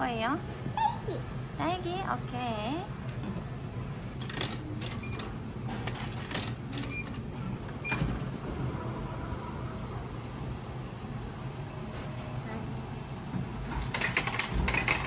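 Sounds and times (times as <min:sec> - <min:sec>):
coins clinking into coin slot: 0:04.2 - 0:05.3, 0:05.9 - 0:07.3, 0:13.6 - 0:15.0.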